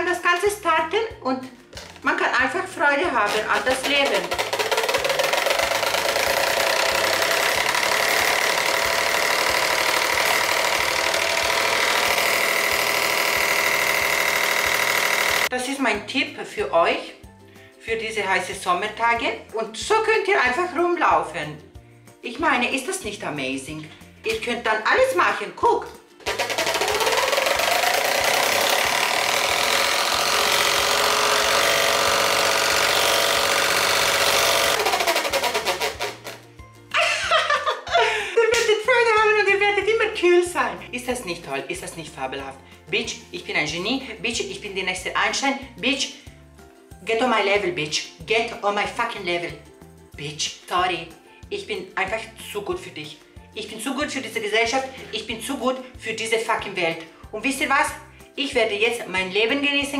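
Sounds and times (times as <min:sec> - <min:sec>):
electric fan whirring: 0:03.2 - 0:15.5, 0:26.2 - 0:36.4.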